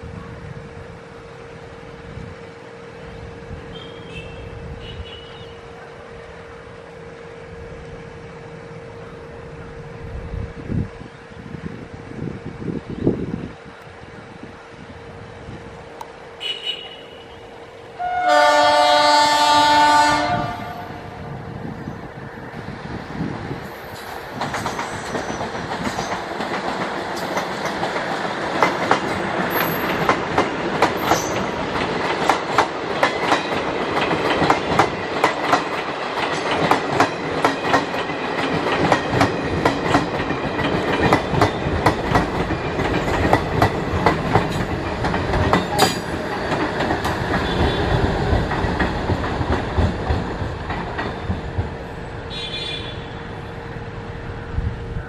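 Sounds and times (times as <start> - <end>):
train running tone: 0.0 - 55.0
train wheels clattering: 23.6 - 52.1.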